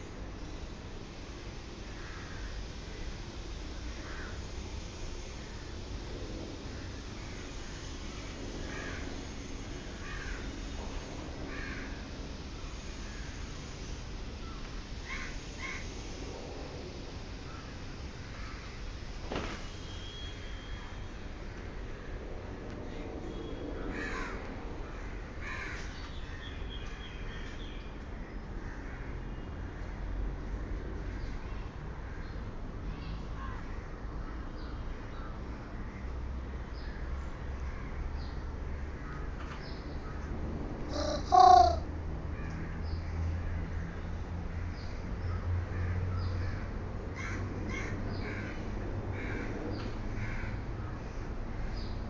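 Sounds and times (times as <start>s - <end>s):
steady low hum: 0.0s - 52.0s
crow cawing: 11.5s - 12.0s, 23.9s - 24.4s, 25.4s - 25.8s, 40.9s - 42.5s, 47.2s - 48.6s.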